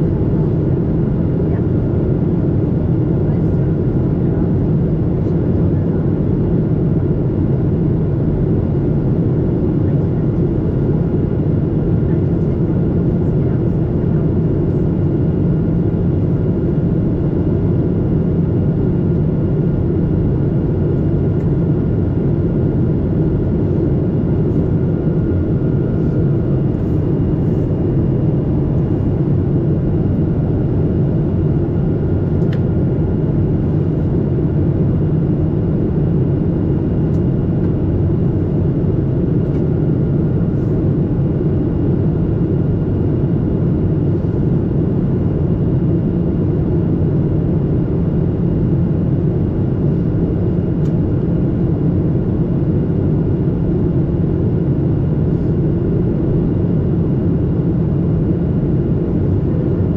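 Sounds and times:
jet engines and airflow rushing: 11.1 - 52.2, 54.8 - 59.9.

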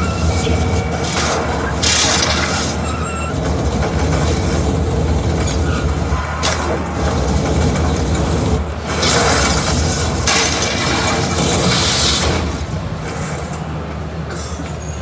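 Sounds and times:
crashes: 8.3 - 13.5.

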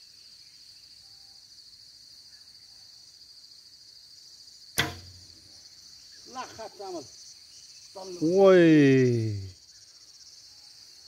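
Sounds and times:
crickets buzzing: 0.0 - 11.0
bowstring snap: 4.8 - 5.5.

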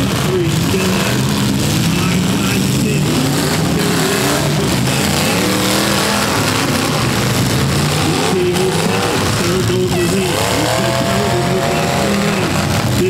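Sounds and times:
car engines revving: 0.0 - 13.0.

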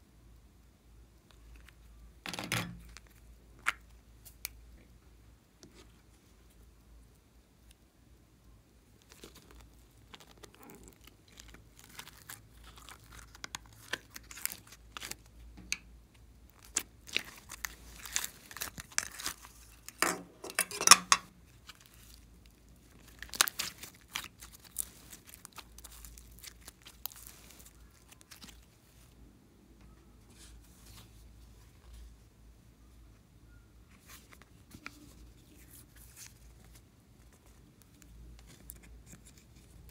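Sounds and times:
slime crackling and popping: 9.0 - 15.9, 16.5 - 20.0, 21.5 - 28.8.

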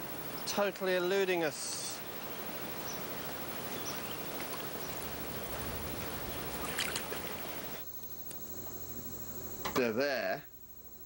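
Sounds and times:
water sloshing from wading: 2.5 - 8.8.

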